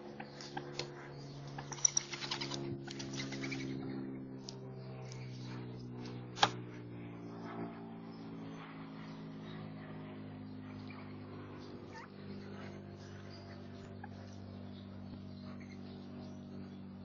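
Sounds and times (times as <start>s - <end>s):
steady low hum: 0.0s - 17.0s
faint bird chirps: 8.1s - 17.0s.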